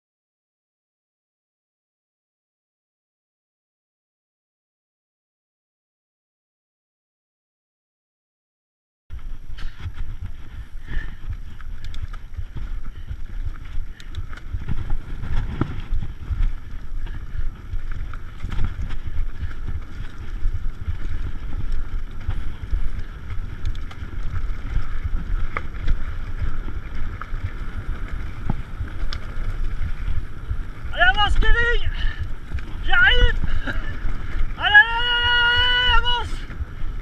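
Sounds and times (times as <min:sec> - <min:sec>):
bike clicks and rattles: 0:09.1 - 0:37.0
tyres rumbling on dirt: 0:09.1 - 0:37.0
wind buffeting microphone: 0:09.1 - 0:37.0.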